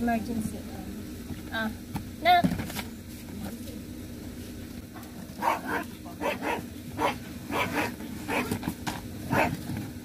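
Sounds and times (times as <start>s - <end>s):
small dog barking: 5.4s - 8.6s, 9.3s - 9.6s.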